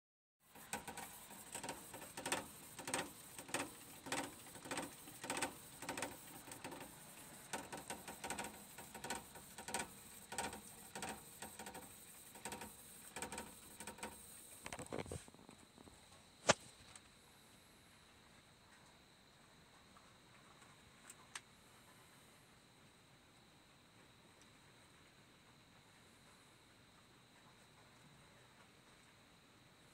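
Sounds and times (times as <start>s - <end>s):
hamster running in cage: 0.4s - 16.6s.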